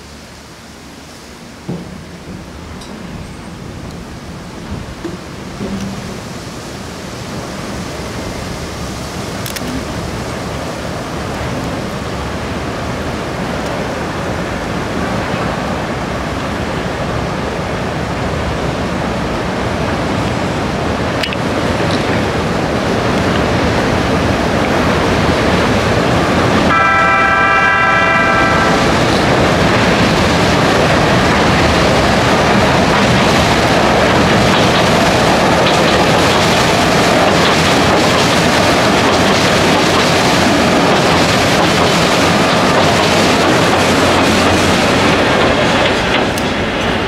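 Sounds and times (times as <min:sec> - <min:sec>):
train wheels clattering on rails: 0:01.6 - 0:06.6, 0:21.1 - 0:26.8, 0:28.0 - 0:47.0
train horn: 0:26.7 - 0:29.1.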